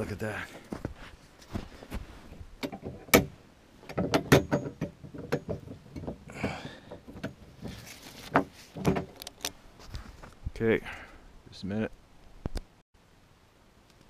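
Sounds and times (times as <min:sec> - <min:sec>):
brief rustle: 0:07.6 - 0:10.4.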